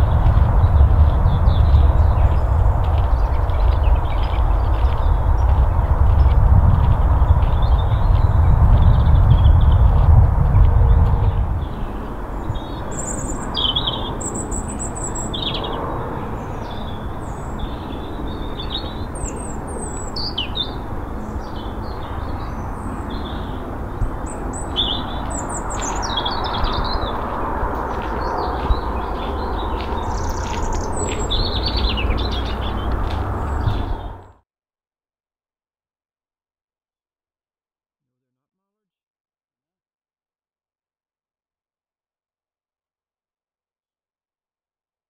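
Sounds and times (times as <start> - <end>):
small birds chirping and singing: 0.0 - 34.3.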